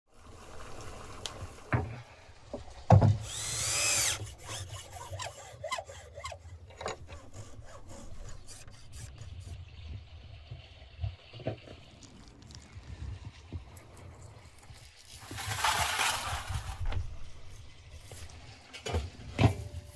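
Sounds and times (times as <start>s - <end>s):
hacksaw rasping through bone: 3.3s - 9.6s.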